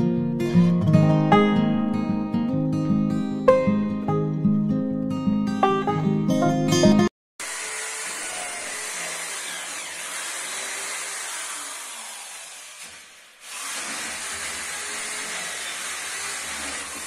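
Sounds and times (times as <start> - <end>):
electric drill boring into wall: 7.4 - 17.0.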